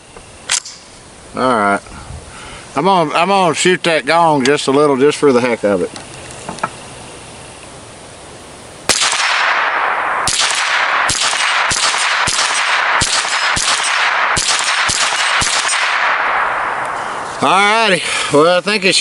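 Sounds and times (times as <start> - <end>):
rifle shots: 8.8 - 17.6.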